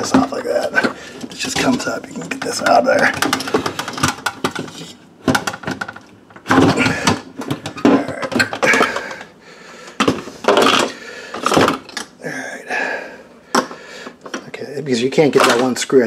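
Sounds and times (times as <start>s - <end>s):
plastic parts clattering in metal tub: 0.0s - 9.3s, 10.0s - 12.0s, 15.2s - 15.9s.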